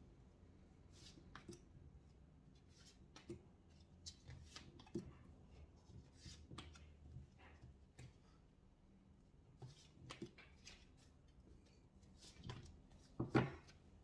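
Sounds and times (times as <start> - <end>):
cards swishing and tapping: 9.5 - 11.2.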